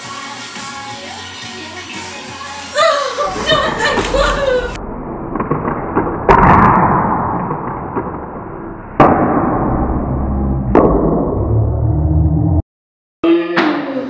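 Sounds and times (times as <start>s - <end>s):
muffled low rumble: 3.2s - 6.3s.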